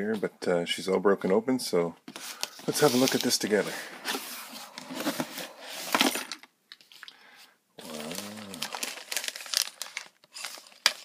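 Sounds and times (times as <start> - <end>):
person humming: 7.8 - 8.8
plastic bags crinkling: 7.8 - 11.0.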